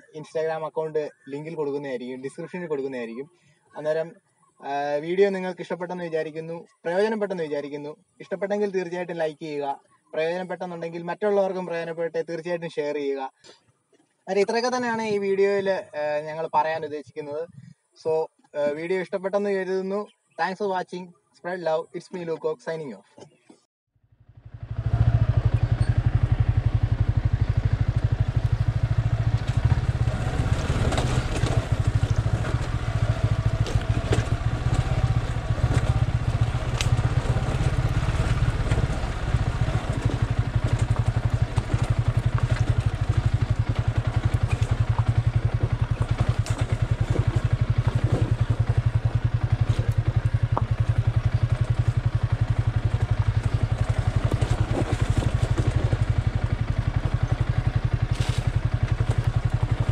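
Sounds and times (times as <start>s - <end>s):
motorcycle engine at low revs: 24.0s - 59.9s
sharp ticks and clatters: 27.8s - 59.9s
tyres crunching over stones: 29.4s - 59.9s.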